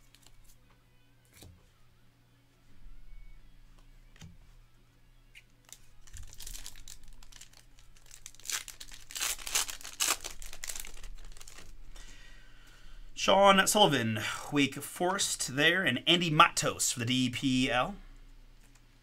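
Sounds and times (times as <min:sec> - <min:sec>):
foil wrapper tearing and crinkling: 0:05.6 - 0:11.8.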